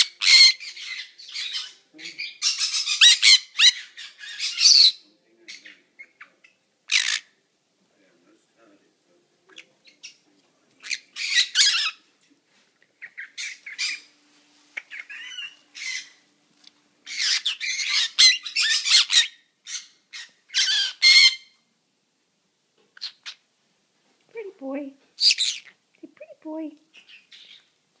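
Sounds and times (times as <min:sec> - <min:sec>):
parrot squawking and chattering: 0:00.0 - 0:07.4, 0:10.8 - 0:12.1, 0:13.0 - 0:14.1, 0:14.8 - 0:16.3, 0:17.0 - 0:21.6, 0:22.9 - 0:23.5, 0:25.2 - 0:25.8, 0:26.9 - 0:27.7.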